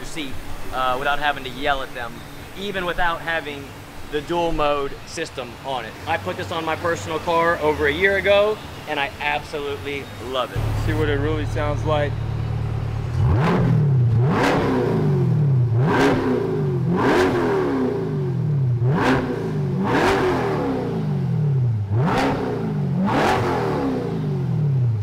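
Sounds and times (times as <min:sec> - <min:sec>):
car engine revving: 0:05.9 - 0:25.0.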